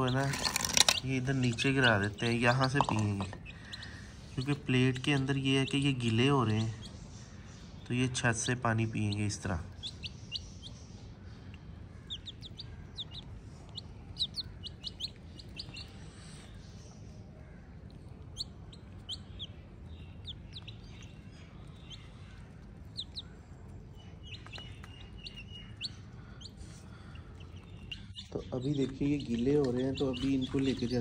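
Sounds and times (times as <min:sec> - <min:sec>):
chicks peeping: 0:00.0 - 0:31.0
low steady hum: 0:00.0 - 0:31.0.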